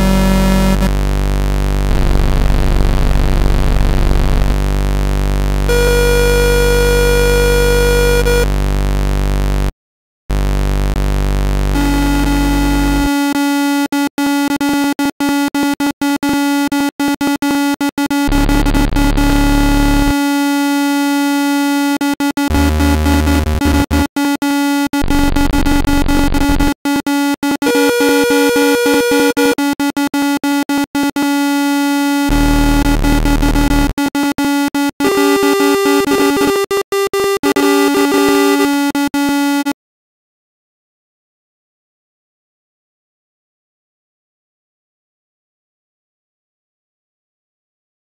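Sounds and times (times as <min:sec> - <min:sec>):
deep electronic tones: 0:00.0 - 0:04.8, 0:05.6 - 0:08.6, 0:18.3 - 0:20.2, 0:22.5 - 0:24.1, 0:25.0 - 0:26.8, 0:32.3 - 0:34.0
layered electronic tones: 0:18.2 - 0:20.2, 0:22.5 - 0:24.1.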